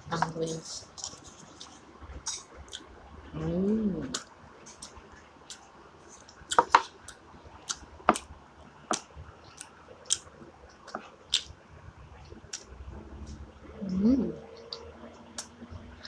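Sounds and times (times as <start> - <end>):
person chewing crispy food: 0.1 - 2.9, 10.9 - 11.5.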